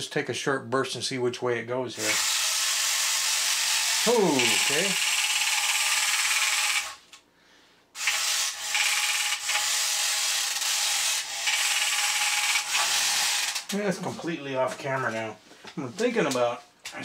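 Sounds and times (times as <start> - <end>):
toy car motor whirring: 2.0 - 7.1, 8.0 - 13.8.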